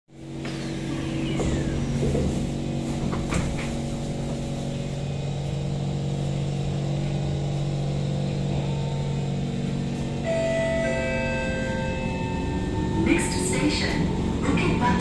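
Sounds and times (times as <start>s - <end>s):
train hum: 0.1s - 15.0s
steady tones: 8.2s - 15.0s.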